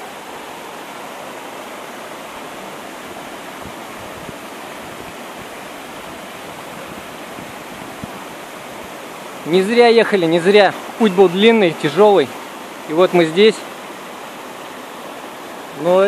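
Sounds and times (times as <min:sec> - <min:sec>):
waterfall rushing: 0:00.0 - 0:16.0.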